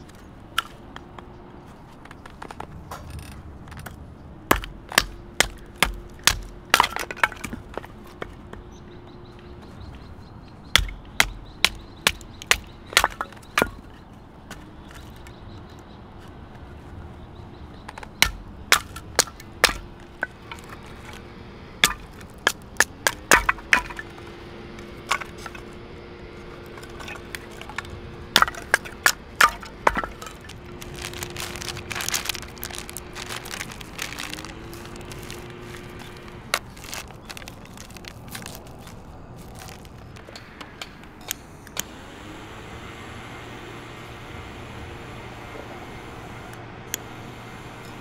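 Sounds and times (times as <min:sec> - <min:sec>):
wood crackling: 0:00.0 - 0:10.0, 0:10.6 - 0:17.1, 0:17.7 - 0:41.2
wood cracking and knocking: 0:02.0 - 0:08.7, 0:10.8 - 0:15.4, 0:17.9 - 0:21.2, 0:21.8 - 0:24.3, 0:25.0 - 0:25.7, 0:26.6 - 0:40.3.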